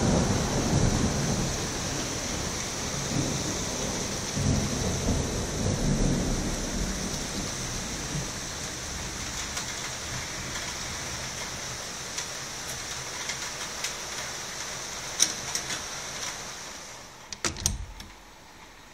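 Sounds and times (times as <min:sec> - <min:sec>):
thunder rumbling: 0:00.0 - 0:11.4
heavy rain hiss: 0:00.0 - 0:17.4
sharp clicks: 0:17.3 - 0:18.2.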